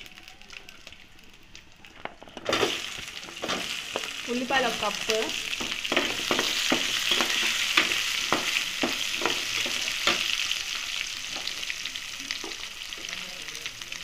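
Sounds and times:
onions sizzling in oil: 0:00.0 - 0:14.0
metal spatula scraping pan: 0:02.5 - 0:10.4.

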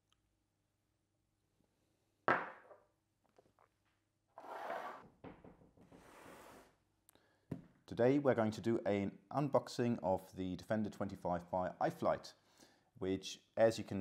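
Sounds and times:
cardboard box scraping on table: 0:04.4 - 0:05.1, 0:05.9 - 0:06.8.

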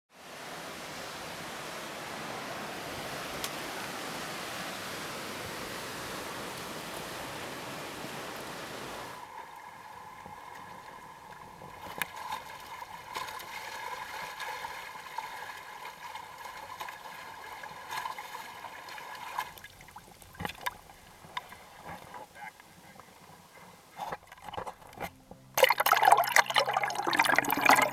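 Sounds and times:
ocean surf: 0:00.1 - 0:19.9
steady faint tone: 0:00.3 - 0:25.6
water lapping against hull: 0:00.7 - 0:27.9.

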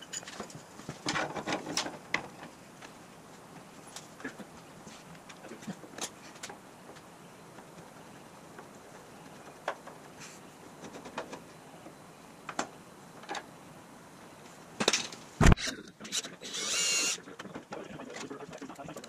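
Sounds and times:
cordless drill whirring: 0:16.5 - 0:17.2.

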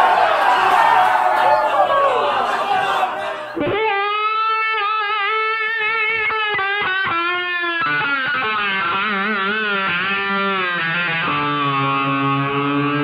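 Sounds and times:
distorted electric guitar melody: 0:03.6 - 0:13.0.

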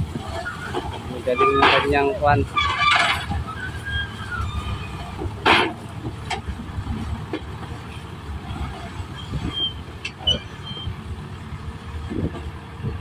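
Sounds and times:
loader engine running: 0:00.0 - 0:13.0
loud metal clank: 0:05.3 - 0:06.4.

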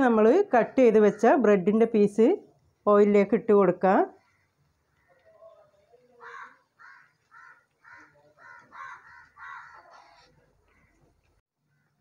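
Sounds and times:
crow cawing: 0:06.1 - 0:11.1, 0:11.7 - 0:12.0.

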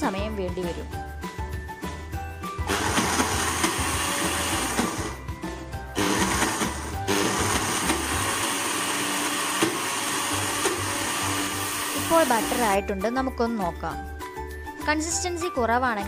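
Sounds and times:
mixer grinder motor whir: 0:02.6 - 0:12.8.

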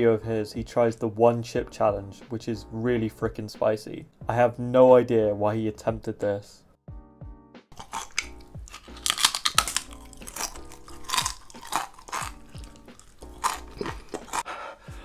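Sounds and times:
background music: 0:00.0 - 0:15.0
person crunching a chip: 0:07.7 - 0:14.5.

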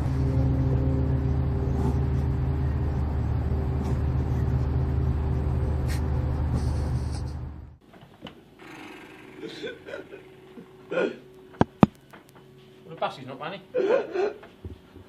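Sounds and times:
low rumbling drone: 0:00.0 - 0:07.8.

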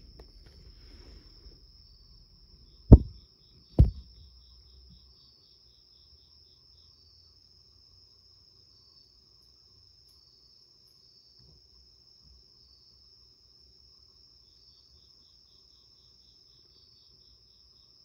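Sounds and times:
crickets chirping: 0:00.0 - 0:18.0
heavy thumps: 0:02.9 - 0:03.2, 0:03.8 - 0:04.2.

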